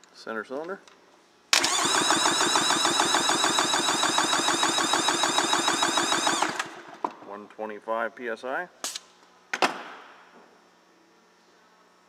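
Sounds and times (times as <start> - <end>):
engine cranking by electric starter: 1.6 - 7.0.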